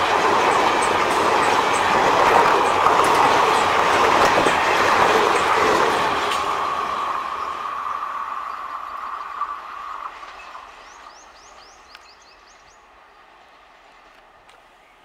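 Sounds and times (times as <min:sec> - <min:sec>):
train wheels rolling on rails: 0:00.0 - 0:15.0
bird chirping: 0:07.4 - 0:12.9.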